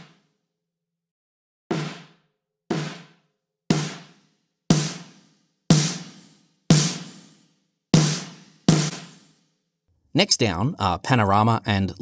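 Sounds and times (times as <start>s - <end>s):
snare drum hits: 0.0s - 0.2s, 1.7s - 9.4s.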